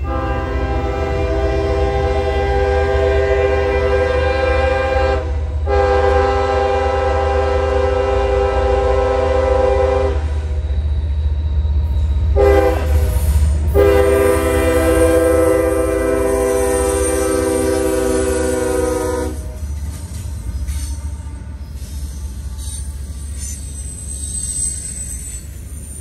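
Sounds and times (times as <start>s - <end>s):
locomotive air horn blasts: 0.0s - 10.6s, 12.3s - 19.7s
train rumbling: 0.0s - 26.0s.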